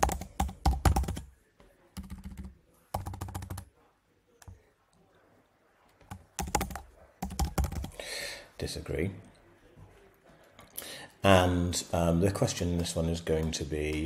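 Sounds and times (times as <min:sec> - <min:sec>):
typing on computer keyboard: 0:00.0 - 0:01.3, 0:02.0 - 0:03.7, 0:06.0 - 0:08.0.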